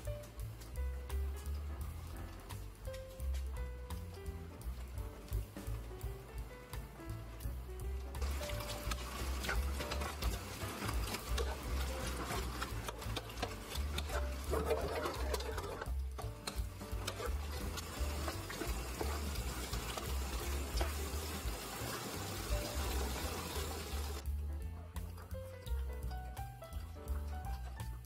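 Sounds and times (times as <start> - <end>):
background music with low bass: 0.0 - 28.0
wooden spatula stirring pasta in pan: 8.1 - 24.2.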